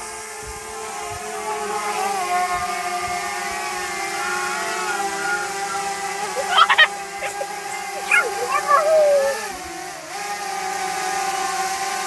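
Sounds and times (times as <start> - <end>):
drone propeller whine: 3.3 - 9.6.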